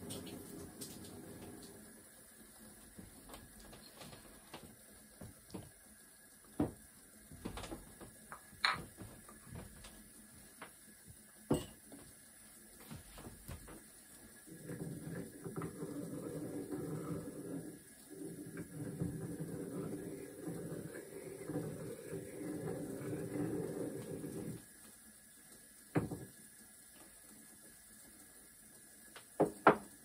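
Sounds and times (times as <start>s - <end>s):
clinks of small vessels and utensils: 11.5s - 11.8s.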